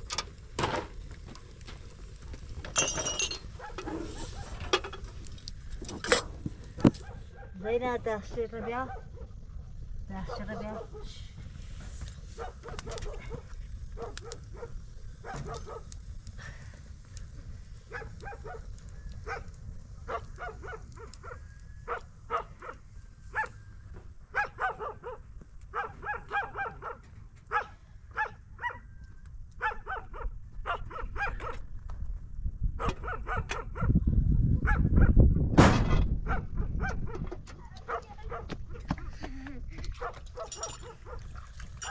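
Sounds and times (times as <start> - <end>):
wind rumbling on microphone: 0.0 - 41.9
dog barking: 3.6 - 4.6, 6.8 - 7.6, 8.5 - 9.4, 10.2 - 11.2, 12.4 - 15.9, 17.9 - 19.5, 20.1 - 23.6, 24.3 - 28.9, 29.6 - 31.6, 32.8 - 34.0, 34.6 - 35.2, 36.2 - 37.2, 37.8 - 38.9, 40.0 - 41.9.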